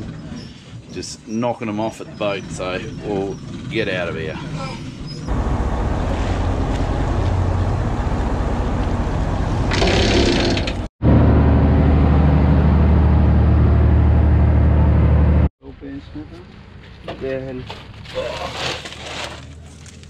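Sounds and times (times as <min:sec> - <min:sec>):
boat diesel engine running: 0:01.6 - 0:15.5.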